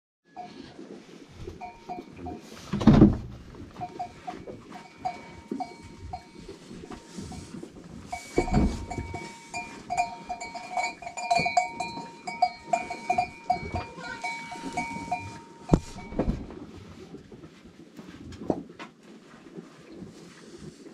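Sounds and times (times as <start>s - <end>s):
goat neck bells clinking: 1.5s - 2.4s, 3.8s - 16.2s.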